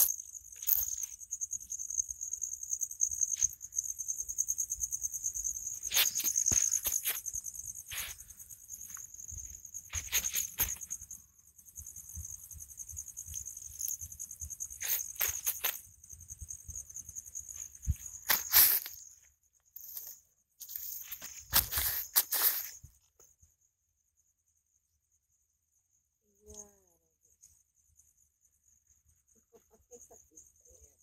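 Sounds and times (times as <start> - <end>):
night insects trilling: 0.0 - 31.0
footsteps in dry grass: 5.9 - 11.0, 14.8 - 15.8, 17.5 - 19.1, 19.8 - 22.9.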